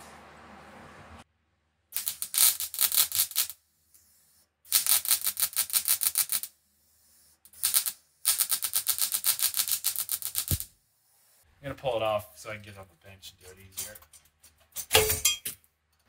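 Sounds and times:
welder crackling: 2.0s - 6.6s, 7.5s - 11.5s.

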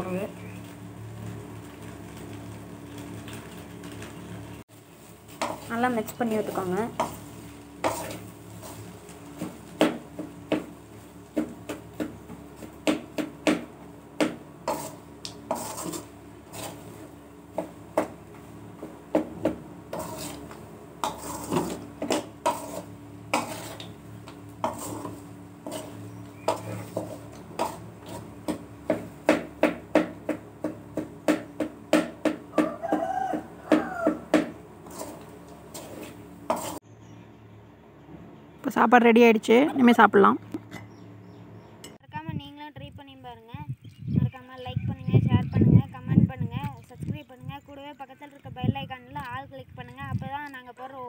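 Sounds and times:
spatula scraping a metal pot: 6.9s - 10.0s, 14.6s - 17.1s, 19.9s - 28.7s, 33.3s - 36.8s.

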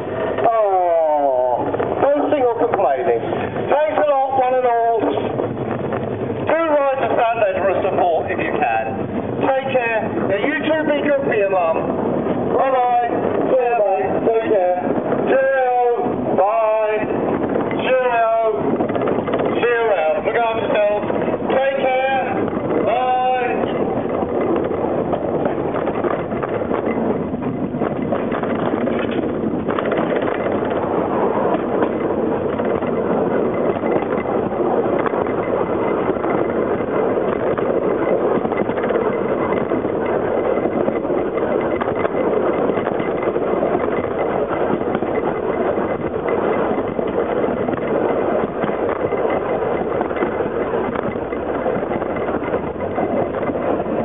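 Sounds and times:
train wheels on rails: 0.0s - 54.0s.

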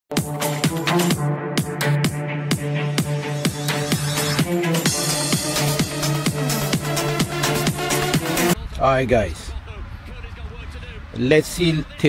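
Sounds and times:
electronic dance music: 0.1s - 8.6s.

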